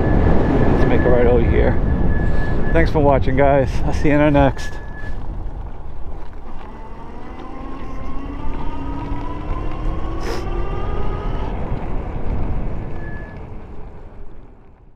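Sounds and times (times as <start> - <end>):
wind and road rumble: 0.0 - 14.9
electric motor whining: 6.3 - 13.4.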